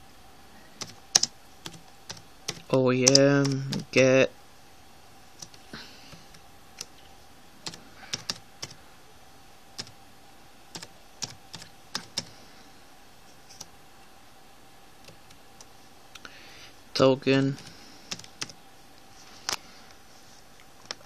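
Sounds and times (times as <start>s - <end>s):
faint steady hum: 0.0s - 21.0s
computer keyboard keystrokes: 0.8s - 3.9s, 7.6s - 8.8s, 9.8s - 10.0s, 10.7s - 12.3s, 17.6s - 18.6s.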